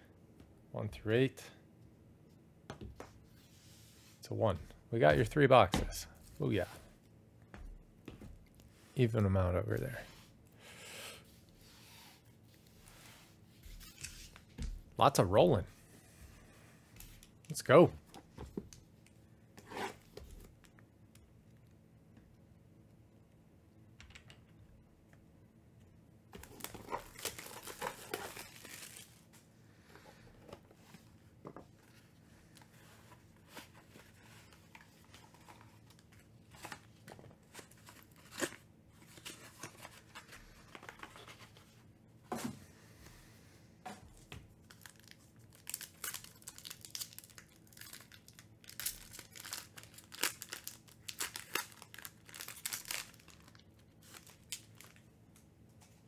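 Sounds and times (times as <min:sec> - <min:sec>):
foil pack crinkling and tearing: 0:26.4 - 0:29.3, 0:44.6 - 0:55.0.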